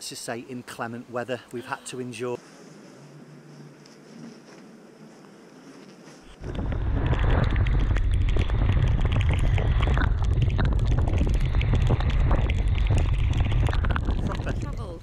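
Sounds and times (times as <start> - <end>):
constant crackle: 1.4 - 15.0
wind buffeting microphone: 6.3 - 15.0.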